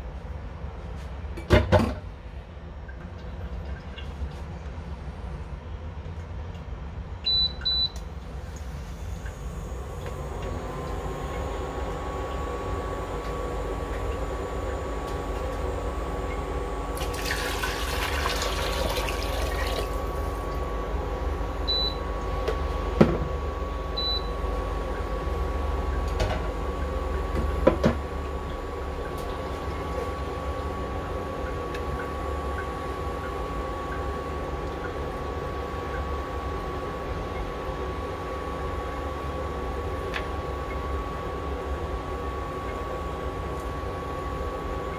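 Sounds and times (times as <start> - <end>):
electrical whine and fan hum: 0.0 - 44.9
water pouring into pot: 17.0 - 20.1.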